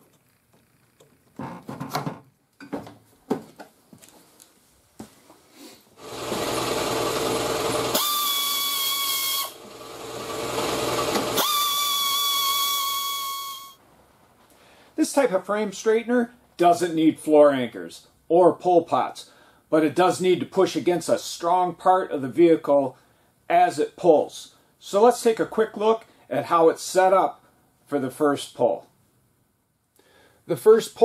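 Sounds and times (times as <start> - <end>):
pneumatic air tool hissing and whining: 6.0 - 13.8.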